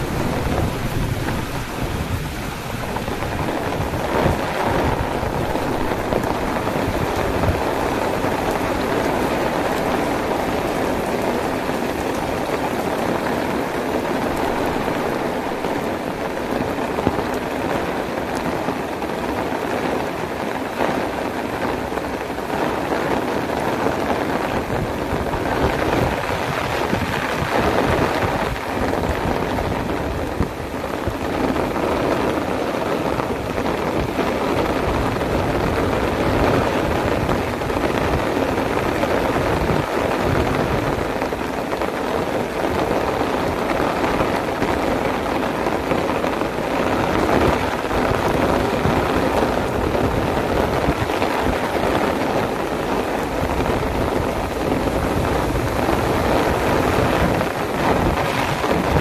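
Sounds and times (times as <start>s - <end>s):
heavy rain pouring: 0.0s - 59.0s.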